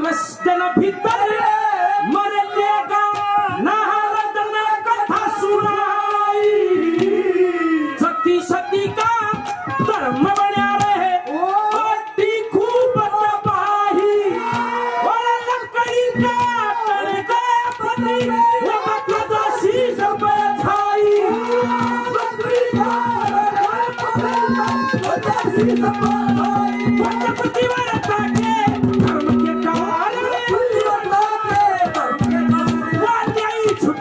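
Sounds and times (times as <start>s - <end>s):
man singing long held notes: 0.0s - 34.0s
hand drum: 8.9s - 13.6s, 17.7s - 34.0s.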